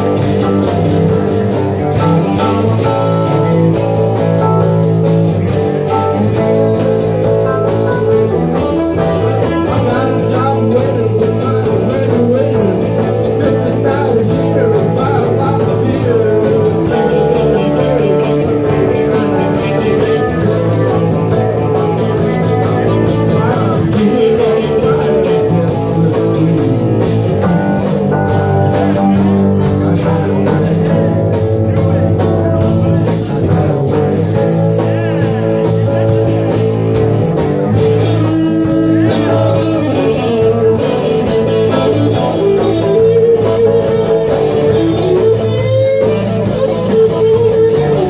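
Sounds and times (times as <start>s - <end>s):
drum kit: 0.0s - 48.0s
electric guitar: 0.0s - 48.0s.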